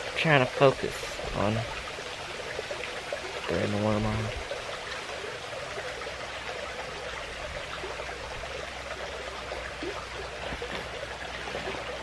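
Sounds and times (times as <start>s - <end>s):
creek water running: 0.0s - 12.0s.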